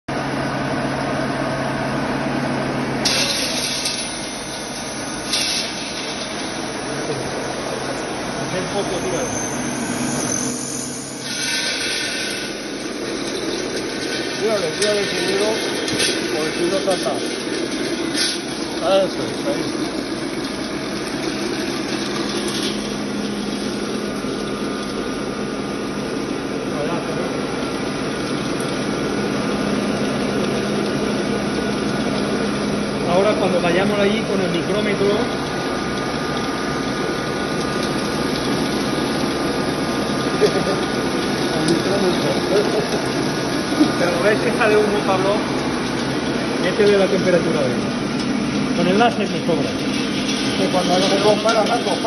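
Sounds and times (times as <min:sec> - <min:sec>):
grinding mill machine hum: 0:00.1 - 0:52.0
nuts rattling into hopper: 0:03.0 - 0:07.4, 0:11.2 - 0:25.2, 0:29.8 - 0:52.0.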